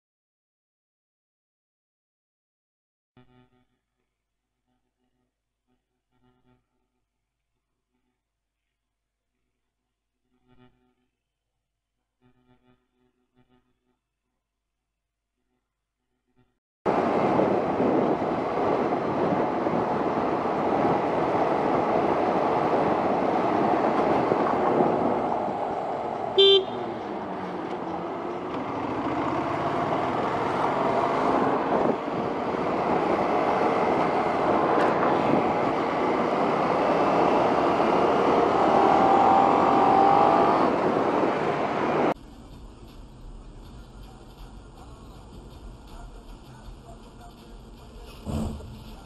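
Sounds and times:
wind rush and road noise: 16.9s - 46.4s
motorcycle engine running: 22.9s - 34.5s
short horn beep: 26.4s - 27.0s.

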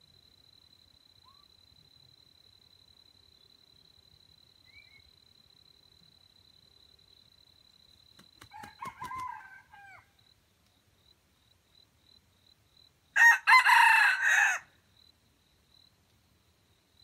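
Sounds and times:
rooster crowing: 8.5s - 10.1s, 13.2s - 14.7s.

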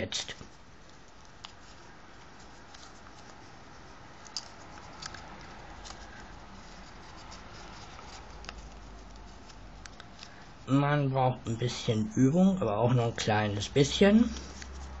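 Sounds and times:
paper rustling: 0.3s - 10.7s
soft paper clicks: 4.2s - 10.4s.

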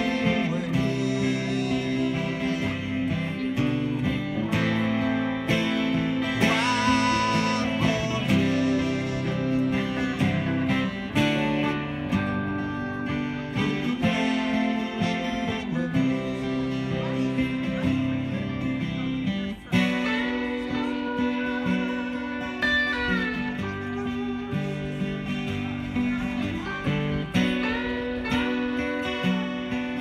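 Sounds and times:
acoustic guitar strumming: 0.0s - 30.0s
electric guitar lead lines: 0.0s - 30.0s.

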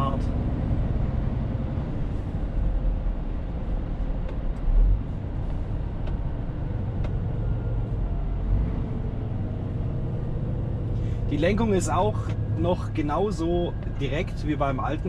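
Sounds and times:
road noise: 0.0s - 15.0s
truck diesel engine running: 5.0s - 15.0s.

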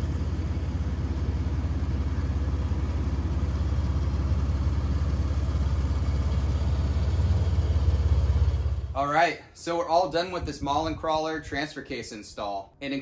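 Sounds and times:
truck engine idling: 0.0s - 9.8s.

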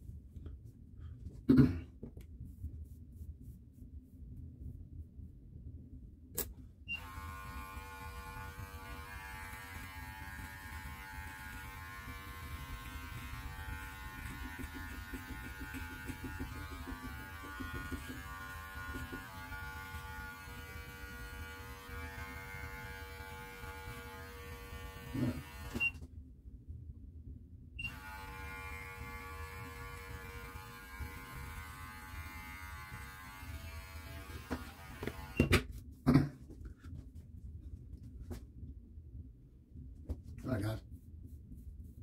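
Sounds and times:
electric clippers buzzing: 7.0s - 25.8s, 27.8s - 35.5s.

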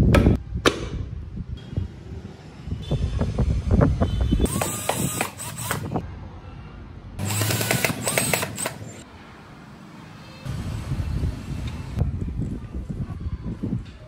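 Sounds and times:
cordless drill whirring: 4.5s - 6.0s, 7.2s - 9.0s.

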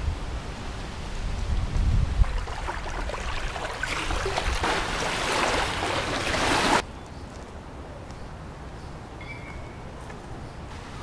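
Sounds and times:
quiet outdoor ambience: 0.0s - 11.0s
rushing water: 1.1s - 6.8s.

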